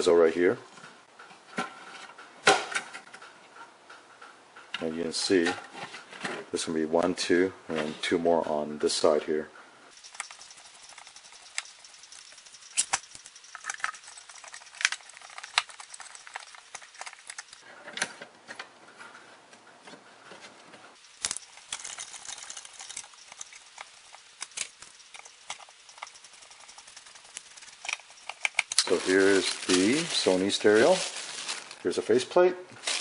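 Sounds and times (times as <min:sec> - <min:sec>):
screwdriver turning screws: 0:10.0 - 0:17.6, 0:21.0 - 0:28.9
plastic parts clicking: 0:10.1 - 0:17.6, 0:21.2 - 0:29.7
scraping rustle: 0:20.0 - 0:32.1, 0:32.8 - 0:33.0.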